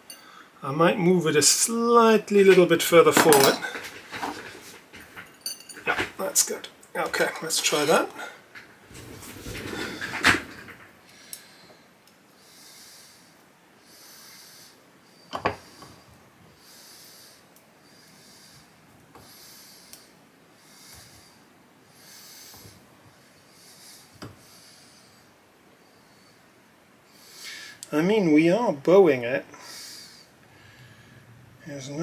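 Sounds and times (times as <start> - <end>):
man breathing through nose: 11.0 - 26.5, 27.1 - 27.8, 29.5 - 31.4.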